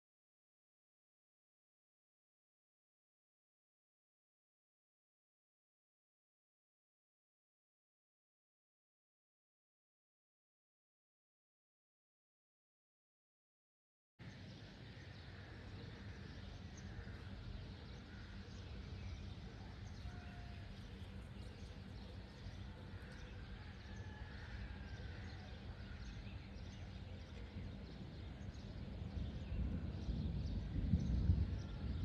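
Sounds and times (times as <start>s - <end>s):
faint bird calls: 14.2s - 32.0s
low rumbling noise: 14.2s - 32.0s.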